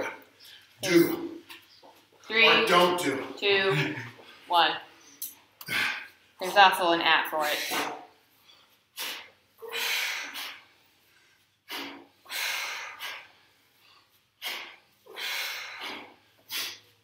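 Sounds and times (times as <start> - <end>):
person breathing heavily: 7.4 - 17.0.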